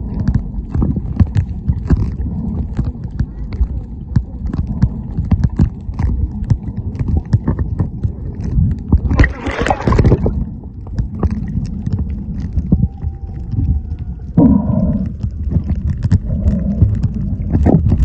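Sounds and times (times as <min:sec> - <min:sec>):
small underwater clicks and crackles: 0:00.0 - 0:18.0
underwater rumble of moving water: 0:00.0 - 0:18.0.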